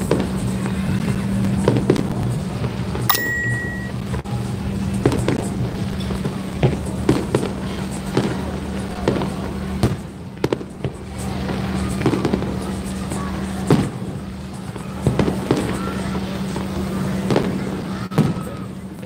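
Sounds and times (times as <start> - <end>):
fireworks bangs and cracks: 1.5 - 2.8, 5.0 - 12.8, 13.7 - 18.6.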